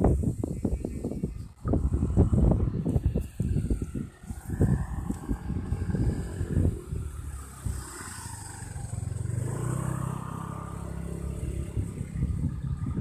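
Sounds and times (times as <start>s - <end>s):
vehicle engine running: 1.6s - 13.0s.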